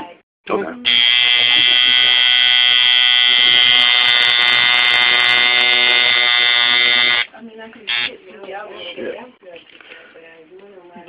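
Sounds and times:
tattoo machine buzzing: 0.9s - 7.3s, 7.9s - 8.1s.

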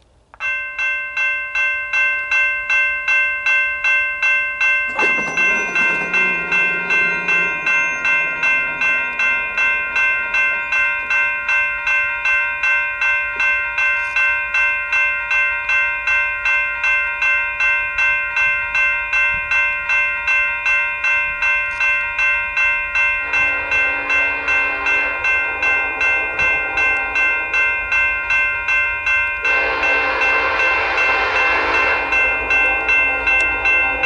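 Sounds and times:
railroad crossing bell ringing: 0.0s - 34.0s
diesel freight train rumble: 4.6s - 34.0s.

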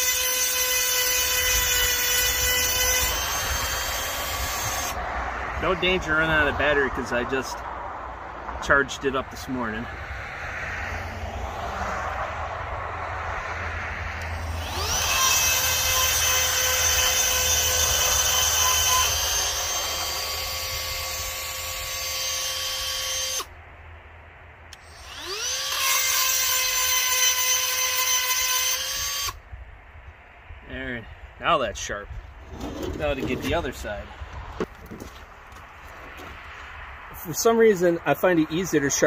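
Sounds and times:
rotary tool grinding whine: 0.0s - 5.0s, 13.4s - 23.5s, 24.7s - 29.4s.

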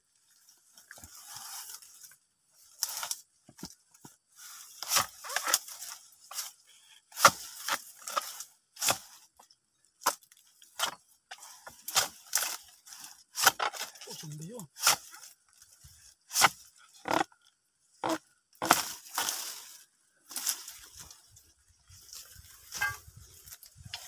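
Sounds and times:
chisel chopping into palm wood: 7.2s - 8.2s, 13.4s - 13.9s, 18.0s - 18.9s.

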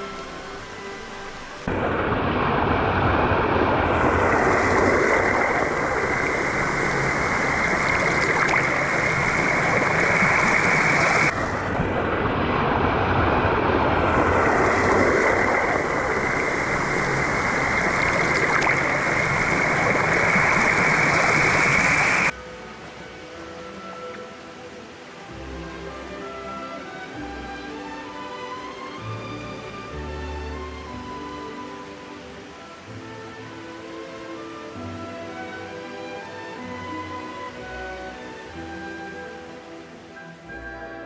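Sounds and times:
quiet music: 0.0s - 2.4s, 22.3s - 41.0s
small waterfall splashing: 0.0s - 41.0s.

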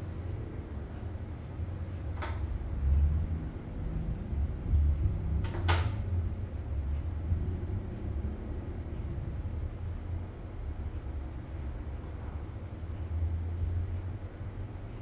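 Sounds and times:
low uneven rumble: 0.0s - 15.0s.

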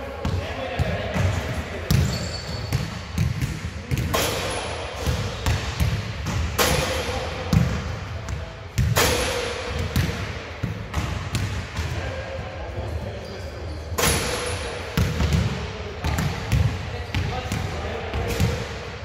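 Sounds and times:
basketballs bouncing: 0.1s - 12.1s, 14.0s - 18.9s
sharp ringing bangs: 14.0s - 14.8s.

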